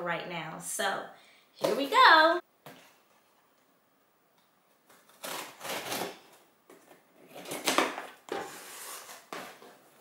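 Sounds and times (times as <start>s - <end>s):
scissors slicing packing tape: 4.9s - 6.4s.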